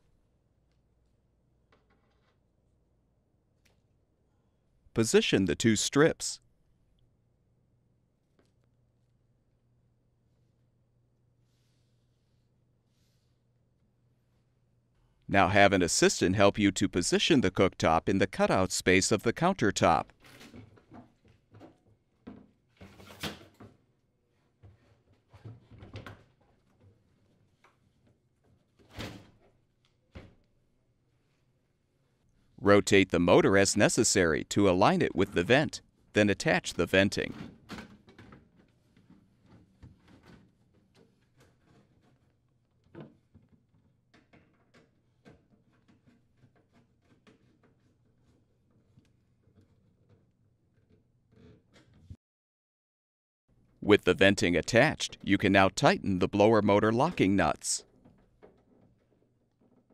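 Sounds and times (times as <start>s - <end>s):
faint scrapes and knocks: 38.2s - 52.2s.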